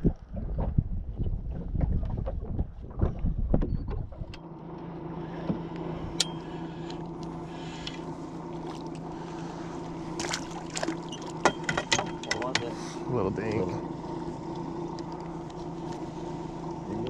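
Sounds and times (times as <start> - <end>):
wind on microphone: 0.0 - 4.4
boat motor humming: 0.0 - 17.0.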